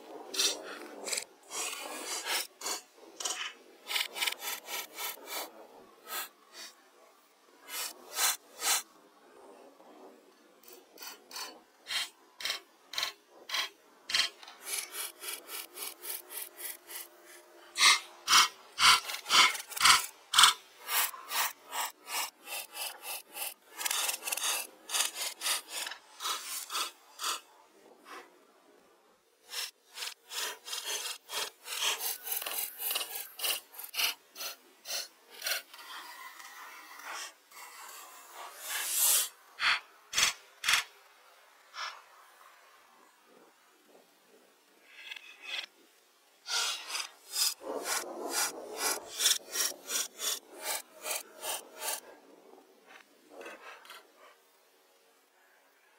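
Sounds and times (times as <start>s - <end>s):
rhythmic sawing strokes on wood: 0.3s - 6.8s, 7.7s - 8.9s, 10.6s - 28.3s, 29.4s - 40.8s, 46.5s - 52.0s.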